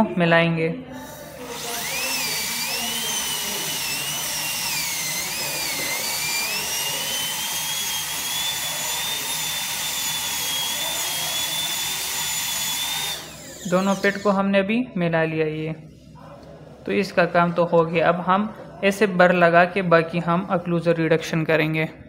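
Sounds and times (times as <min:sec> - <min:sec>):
dental drill whining: 0:01.0 - 0:14.4.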